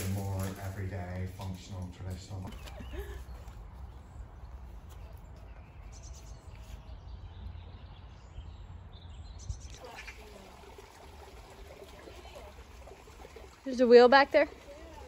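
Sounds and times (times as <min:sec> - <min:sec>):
faint birdsong: 0:00.1 - 0:15.0
small stream trickling: 0:09.6 - 0:15.0.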